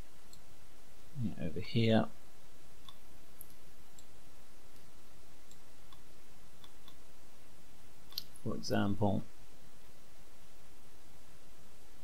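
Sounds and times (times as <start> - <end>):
steady background hiss: 0.0 - 12.0
computer mouse clicks: 4.7 - 7.0, 8.1 - 8.4.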